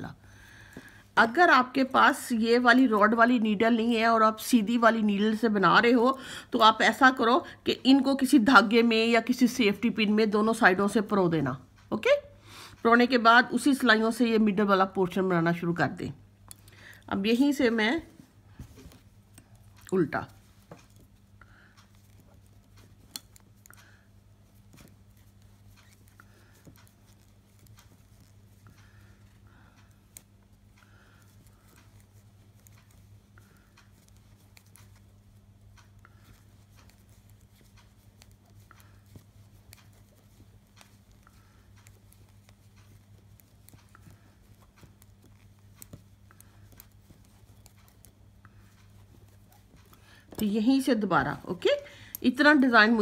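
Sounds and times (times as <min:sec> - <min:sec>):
steady low hum: 0:00.0 - 0:53.0
knitting needles clicking: 0:16.4 - 0:53.0.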